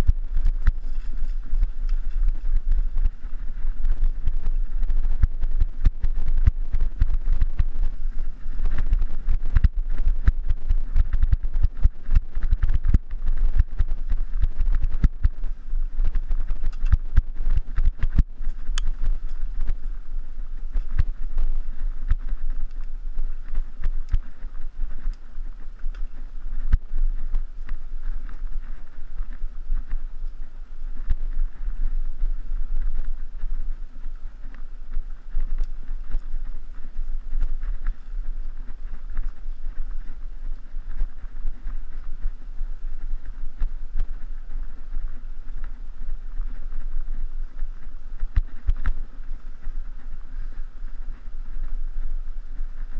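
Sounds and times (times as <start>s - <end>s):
bike clicks and rattles: 0.0s - 20.0s
wind rumble on microphone: 0.0s - 52.9s.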